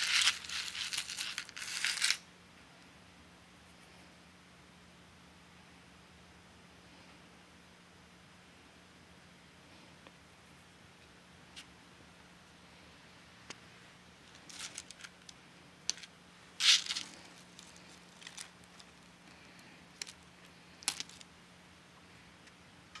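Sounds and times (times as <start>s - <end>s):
jewelry clicking and clattering: 0.0s - 2.2s, 14.3s - 18.9s, 20.8s - 21.2s.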